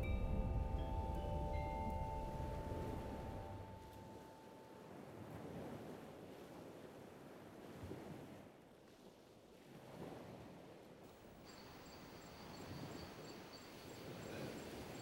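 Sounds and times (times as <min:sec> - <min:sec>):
distant surf: 0:00.0 - 0:08.4, 0:11.1 - 0:15.0
night insects trilling: 0:11.4 - 0:15.0.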